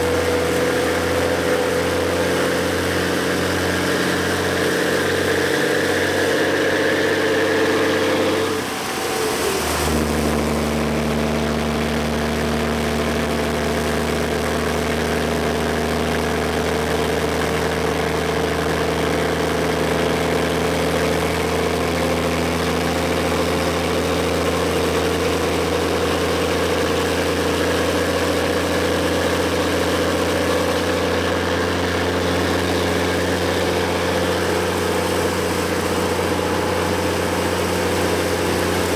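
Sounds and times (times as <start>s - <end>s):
truck diesel engine idling: 22.8s - 38.9s.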